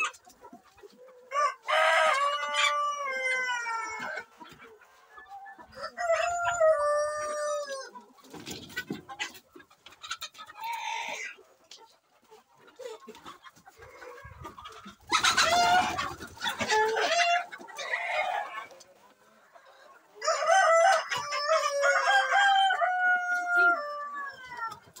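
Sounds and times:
rooster crowing: 20.2 - 24.3.

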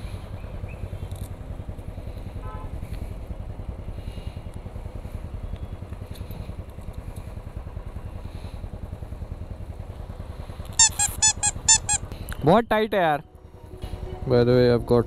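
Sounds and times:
motorcycle engine idling: 0.0 - 12.6
short high squeaks: 10.7 - 12.1.

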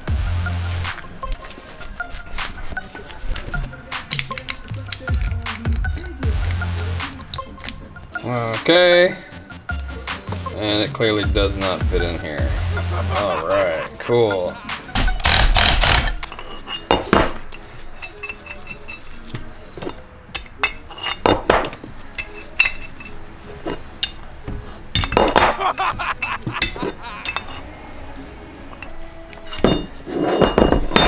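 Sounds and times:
metal clinks and clanks: 15.0 - 27.7, 28.7 - 31.0.

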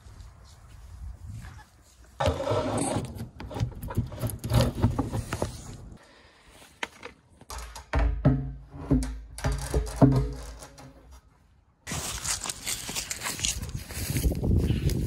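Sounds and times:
hose knocking and scraping: 2.2 - 5.9, 6.8 - 11.3.

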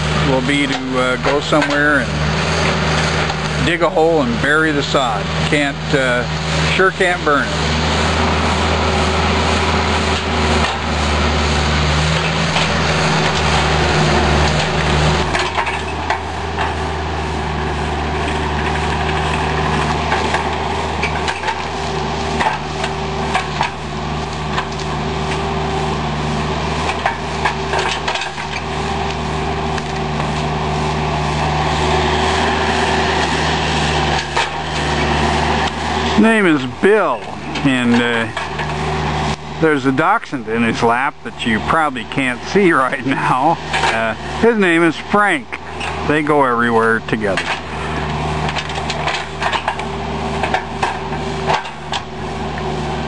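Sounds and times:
diesel engine running: 0.0 - 53.0
excavator clanks and knocks: 0.1 - 5.7, 10.0 - 11.0, 11.6 - 17.0, 18.1 - 30.5, 33.2 - 44.6, 47.0 - 52.8.

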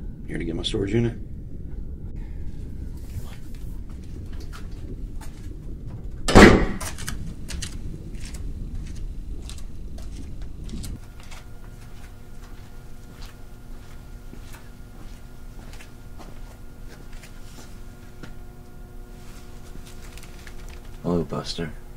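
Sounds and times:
footsteps on concrete floor: 3.0 - 18.4
heavy metal door clanking open: 6.3 - 7.0.

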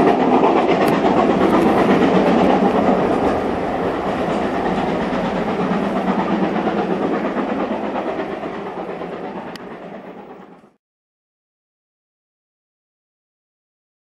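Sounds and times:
steam train wheels clattering: 0.0 - 10.8.

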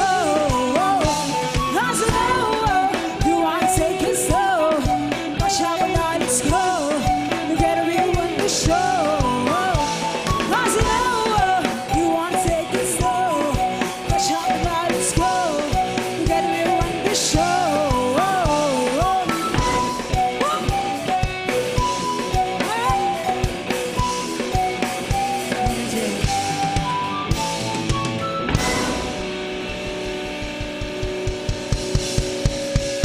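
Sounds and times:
woman singing lead vocal: 0.0 - 26.9
bass guitar: 0.0 - 33.0
drum kit steady beat: 0.0 - 33.0
electric guitars: 0.0 - 33.0
keyboard: 0.0 - 33.0
cymbal crashes: 28.5 - 30.2.

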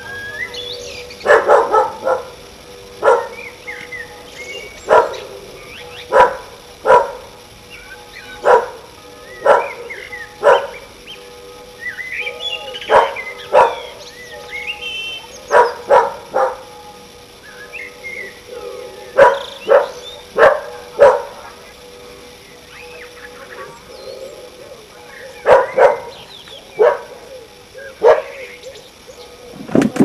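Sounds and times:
birds singing: 0.0 - 30.0
dog barking: 1.2 - 2.4, 3.0 - 3.4, 4.9 - 5.2, 6.1 - 7.3, 8.4 - 8.8, 9.4 - 10.8, 12.7 - 14.5, 15.5 - 16.7, 18.6 - 21.6, 25.4 - 26.2, 26.8 - 27.2, 28.0 - 28.4.

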